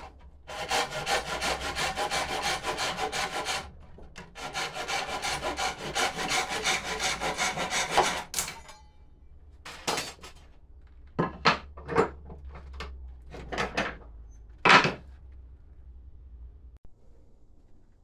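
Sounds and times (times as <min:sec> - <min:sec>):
hand saw cutting wood: 0:00.0 - 0:03.8, 0:04.4 - 0:08.4.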